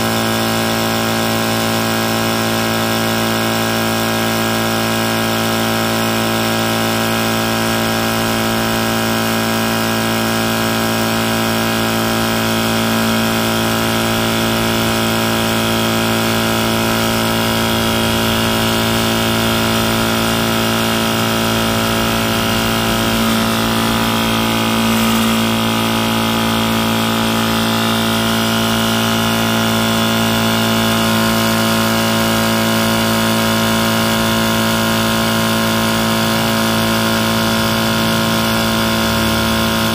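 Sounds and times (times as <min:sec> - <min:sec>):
air compressor droning: 0:00.0 - 0:39.9.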